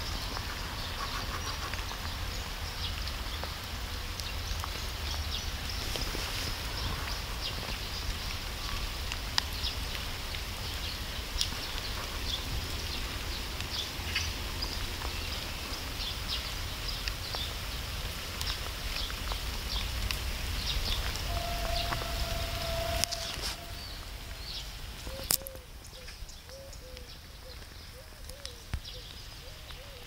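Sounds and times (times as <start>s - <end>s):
faint high-pitched ticks: 18.4s - 30.0s
low rumble: 19.2s - 25.2s.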